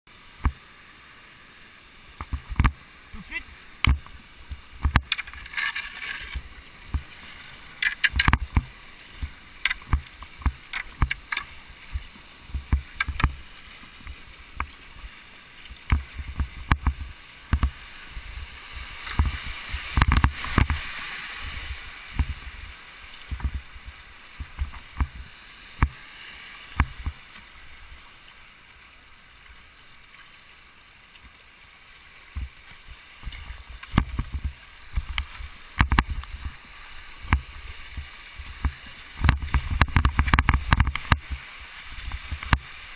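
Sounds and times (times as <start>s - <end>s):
rushing river water: 0.1s - 42.9s
paddle knocks and splashes: 2.2s - 2.8s, 3.8s - 7.2s, 7.8s - 22.6s, 23.2s - 23.7s, 24.4s - 26.0s, 32.3s - 36.6s, 37.2s - 42.8s
water slapping plastic hull: 7.8s - 13.4s, 19.0s - 20.9s, 32.3s - 36.6s, 37.2s - 42.7s.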